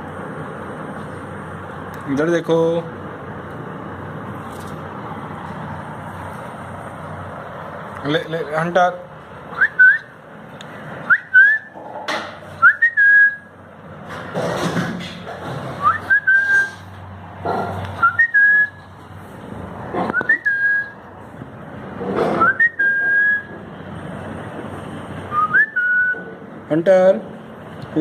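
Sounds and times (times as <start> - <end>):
person whistling short calls: 9.6 - 10.1, 11.1 - 11.7, 12.6 - 13.5, 15.8 - 16.8, 18.0 - 18.8, 20.1 - 21.0, 22.4 - 23.5, 25.3 - 26.3.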